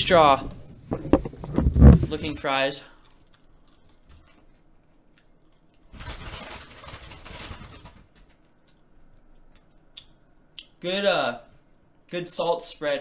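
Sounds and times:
person chewing crispy fries: 2.9s - 5.9s.

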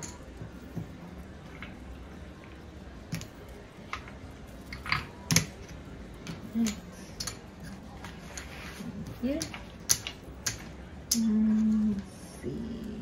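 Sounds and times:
casino chips clicking: 3.1s - 11.5s.

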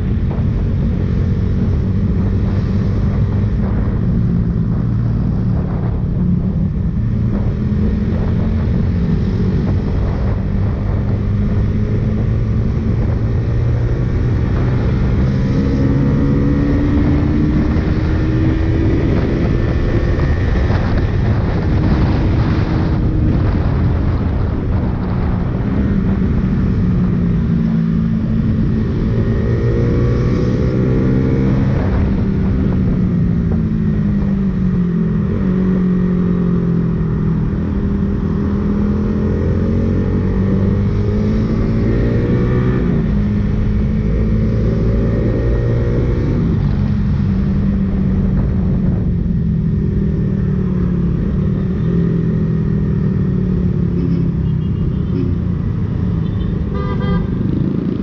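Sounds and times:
motorcycle engine revving: 0.0s - 58.0s
vehicle horn toot: 56.4s - 57.4s.

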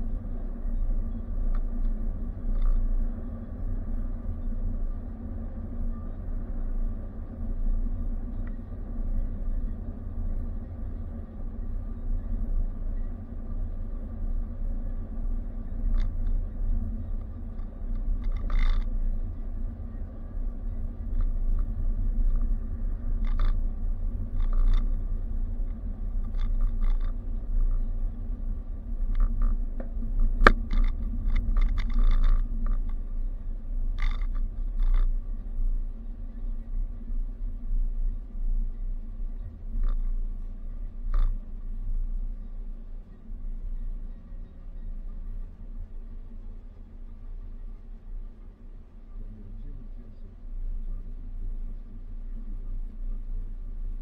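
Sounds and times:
car road and engine rumble: 0.0s - 54.0s
faint steady hum: 0.0s - 54.0s
small clicks and rattles: 0.8s - 3.0s, 15.0s - 19.8s, 20.5s - 36.0s, 39.6s - 42.2s.

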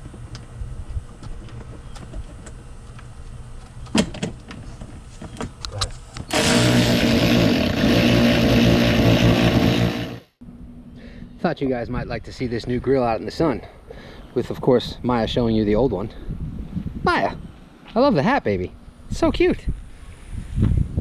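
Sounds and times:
cordless electric ratchet running: 6.3s - 10.3s.

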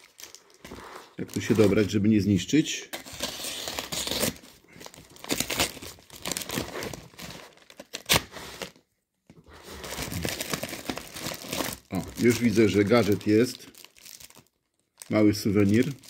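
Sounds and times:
paper envelope tearing and crinkling: 3.0s - 8.8s, 9.6s - 14.4s.

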